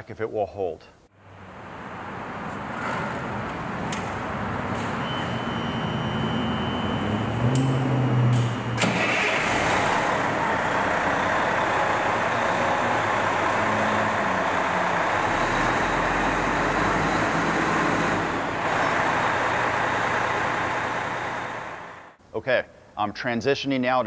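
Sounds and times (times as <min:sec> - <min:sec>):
diesel engine idling: 0:05.3 - 0:22.2.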